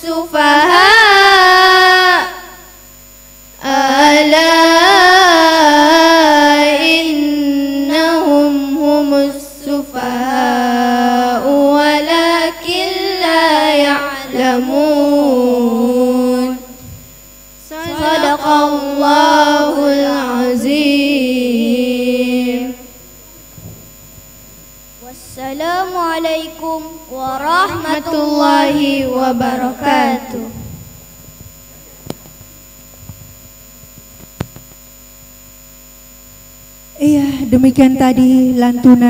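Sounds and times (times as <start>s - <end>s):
children chanting melodic recitation: 3.6s - 16.9s, 17.6s - 23.0s, 25.0s - 30.9s.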